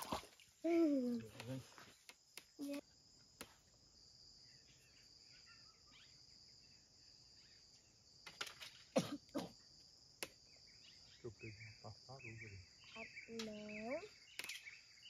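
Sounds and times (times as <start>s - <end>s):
insects droning: 0.0s - 15.0s
faint chirps: 4.4s - 8.0s, 9.2s - 15.0s.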